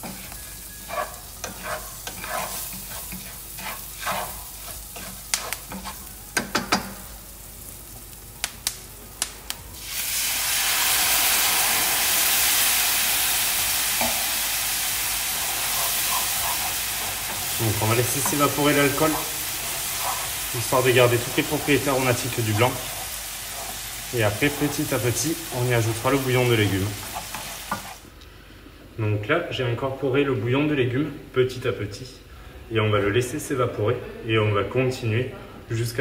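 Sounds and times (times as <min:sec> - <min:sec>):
utensil scraping a frying pan: 0:00.0 - 0:06.2, 0:15.3 - 0:25.0, 0:26.1 - 0:28.0
wine sizzling in a hot pan: 0:00.0 - 0:28.2.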